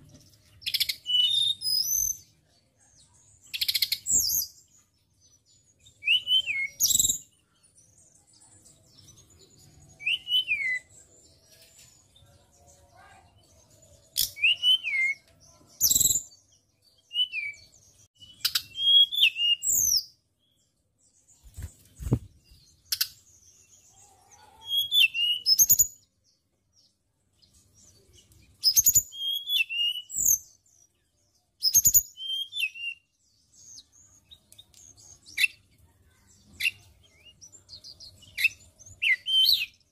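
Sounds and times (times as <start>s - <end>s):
bird singing whistled notes: 0.6s - 2.4s, 3.5s - 4.7s, 5.3s - 8.4s, 9.0s - 11.2s, 14.1s - 20.2s, 24.6s - 26.2s, 27.8s - 35.6s, 36.3s - 39.9s.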